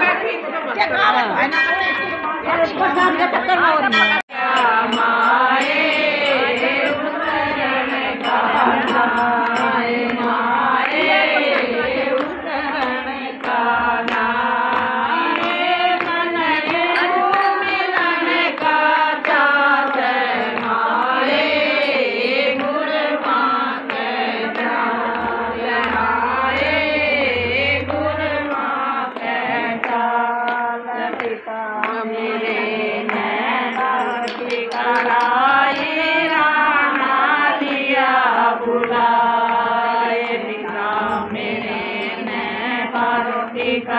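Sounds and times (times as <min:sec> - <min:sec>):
women singing devotional song: 0:02.4 - 0:43.9
handclaps: 0:04.8 - 0:26.1, 0:27.9 - 0:41.6.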